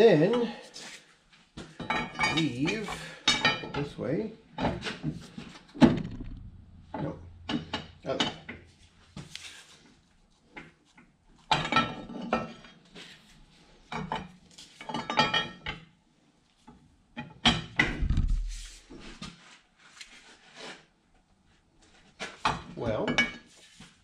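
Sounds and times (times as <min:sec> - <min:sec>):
heavy metal knock: 0:05.8 - 0:08.7, 0:17.8 - 0:18.9.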